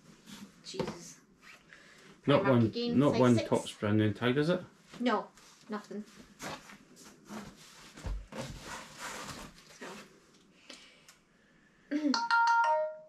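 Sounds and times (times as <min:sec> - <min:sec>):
clothes and plastic packaging rustling: 0:04.9 - 0:10.4.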